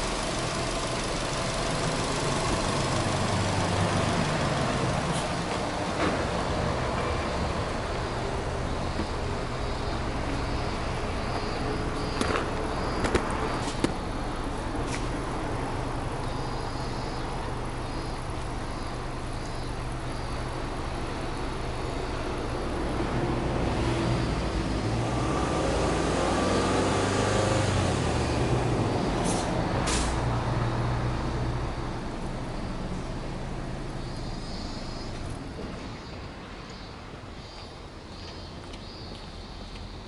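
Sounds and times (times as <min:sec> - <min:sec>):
car engine idling and revving: 0:00.0 - 0:40.0.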